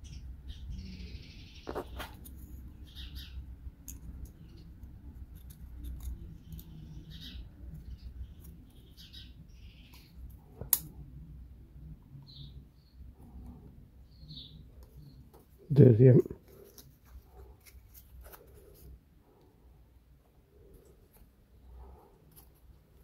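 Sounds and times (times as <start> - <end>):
wooden pieces clicking and scraping: 3.8 - 7.0.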